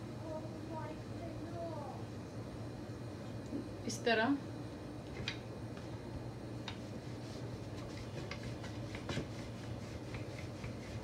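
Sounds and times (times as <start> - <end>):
rolling pin rubbing dough: 6.7 - 11.0.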